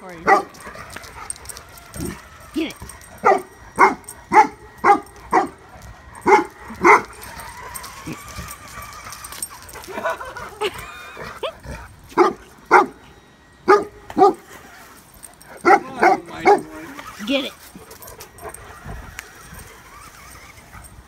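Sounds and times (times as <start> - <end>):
dog barking deeply: 0.2 - 0.7, 3.2 - 5.6, 6.2 - 7.2, 12.2 - 13.0, 13.7 - 14.4, 15.6 - 16.9.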